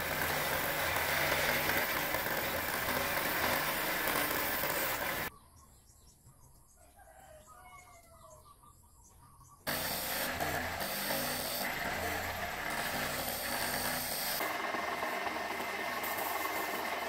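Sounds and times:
electric motor hum: 0.0 - 5.3, 9.7 - 17.0.

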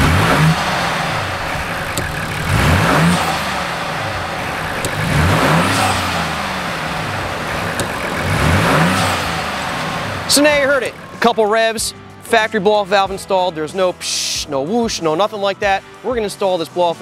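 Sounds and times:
car engine idling and revving: 0.0 - 12.2.

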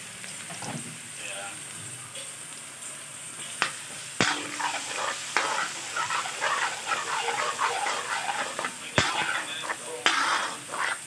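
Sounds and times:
oil sizzling in a wok: 0.0 - 11.0
metal spatula scraping a wok: 3.6 - 11.0.

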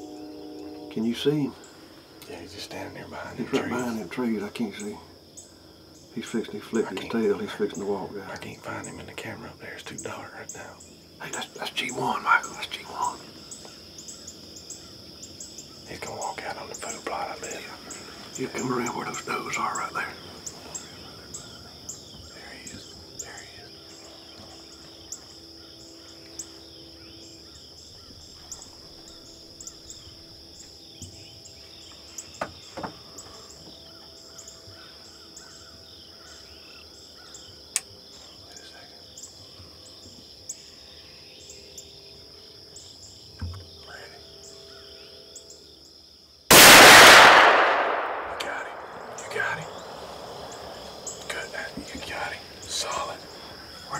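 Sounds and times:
steady high-pitched hum: 0.0 - 6.0
gunshot blast: 46.5 - 50.7.

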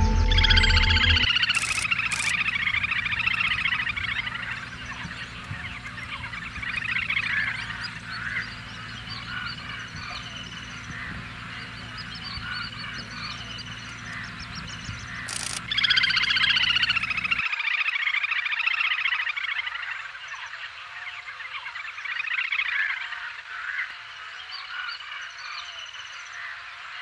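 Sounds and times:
faint short bird calls: 1.3 - 17.4.

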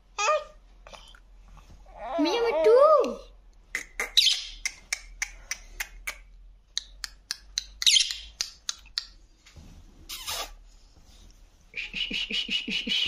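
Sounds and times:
parakeet squawking: 4.0 - 4.6, 7.8 - 8.3.

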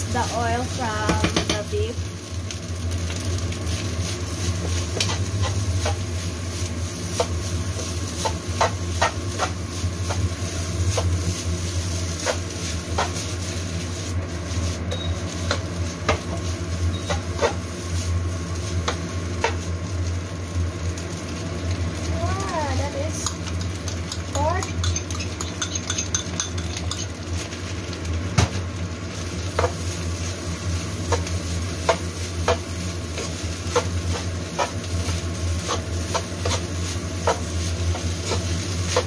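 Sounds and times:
induction cooktop hum: 0.0 - 39.0
metal spoon scraping a wok: 16.9 - 17.6, 24.7 - 27.2.

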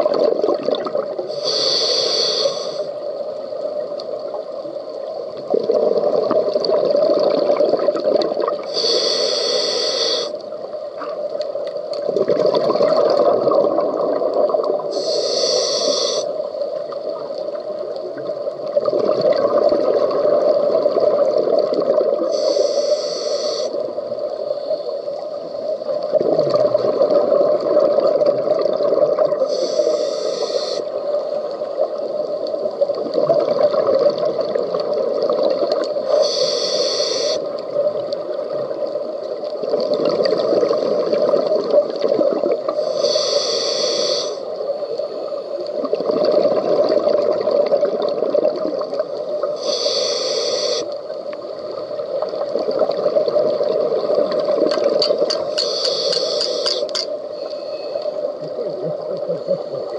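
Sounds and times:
bubbling exhale: 0.0 - 3.0, 5.4 - 10.4, 12.1 - 16.4, 26.0 - 31.0, 39.6 - 44.5, 45.8 - 51.1, 52.5 - 59.9
regulator inhalation hiss: 1.2 - 3.3, 8.6 - 10.6, 14.8 - 16.8, 22.2 - 26.0, 29.4 - 31.5, 36.0 - 37.7, 42.7 - 45.4, 49.4 - 51.2, 55.4 - 58.3.

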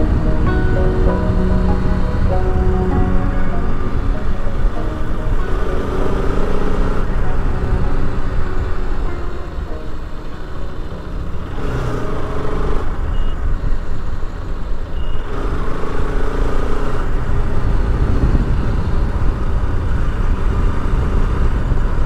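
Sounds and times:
wind rumble on microphone: 17.2 - 22.0.

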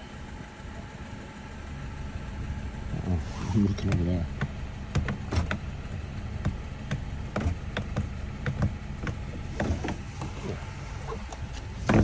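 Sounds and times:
car door handling clicks: 3.8 - 12.0.

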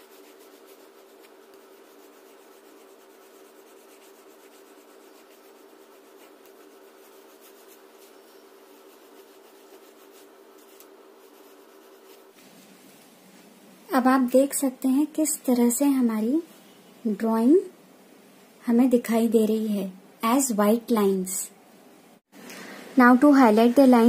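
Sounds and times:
oil pastel rubbing on paper: 0.0 - 13.1.

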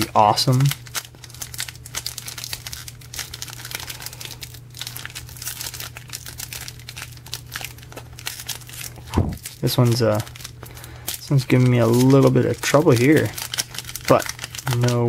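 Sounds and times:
foil wrapper crinkling: 0.0 - 15.0
low steady hum: 0.0 - 15.0.

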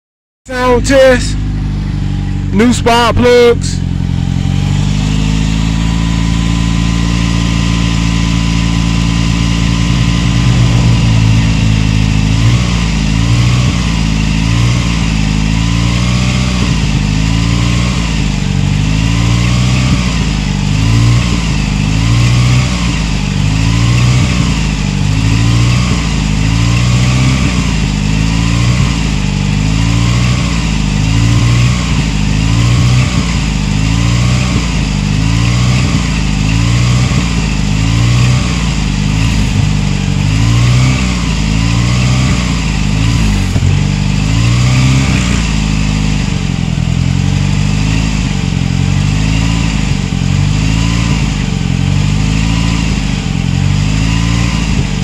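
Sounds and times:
pickup engine idling: 0.5 - 7.1, 7.7 - 23.7, 37.2 - 52.3.

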